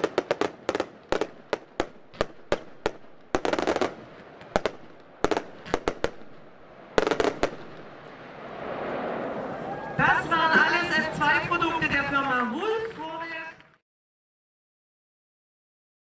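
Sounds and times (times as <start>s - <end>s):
fireworks banging: 0.0s - 13.7s.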